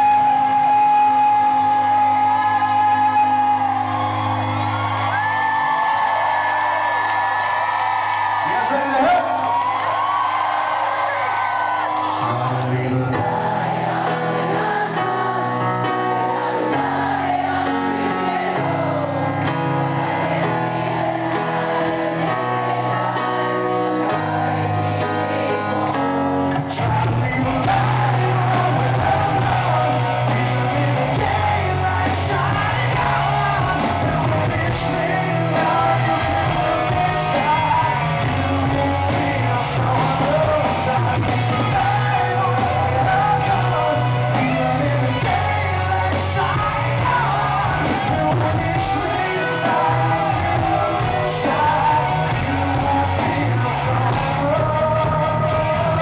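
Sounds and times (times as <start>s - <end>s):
electric guitar: 9.0s - 56.0s
person singing: 11.8s - 56.0s
drums and bass: 26.6s - 56.0s.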